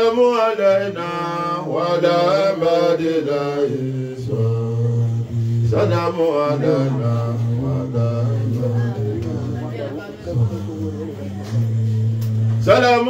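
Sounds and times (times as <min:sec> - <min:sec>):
man chanting through loudspeaker: 0:00.0 - 0:13.0
low steady drone: 0:03.7 - 0:13.0.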